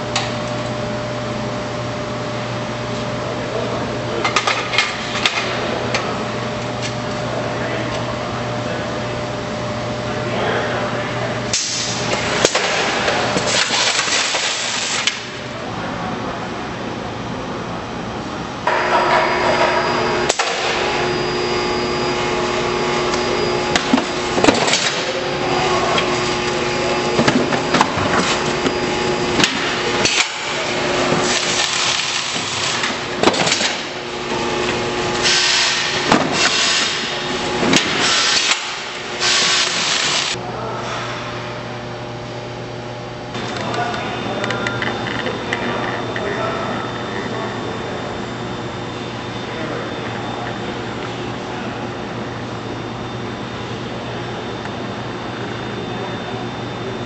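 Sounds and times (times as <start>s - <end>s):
case-sealing machine humming: 11.4s - 15.6s, 17.7s - 40.4s.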